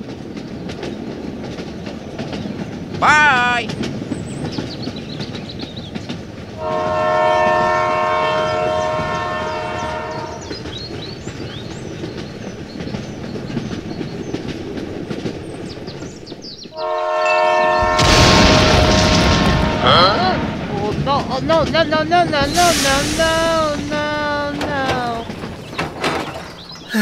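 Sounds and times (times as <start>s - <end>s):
toy train horn chord: 6.6s - 10.3s, 16.8s - 18.9s.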